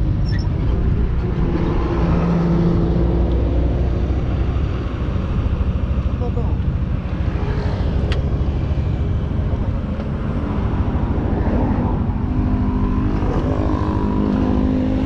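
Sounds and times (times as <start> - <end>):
road and wind noise: 0.0 - 15.0.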